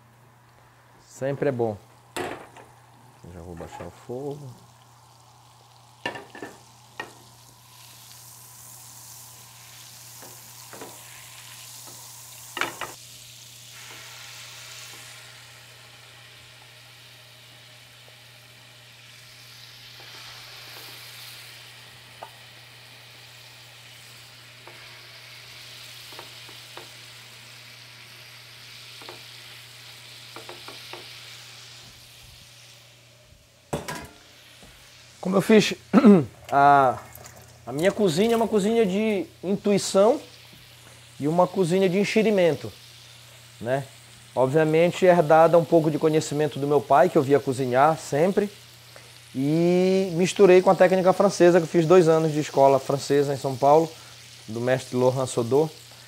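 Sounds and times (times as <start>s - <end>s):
fish sizzling in a pan: 1.6s - 56.0s
utensils knocking on pan: 6.0s - 7.2s, 10.2s - 11.0s, 12.6s - 13.0s, 30.3s - 31.1s, 33.7s - 34.2s.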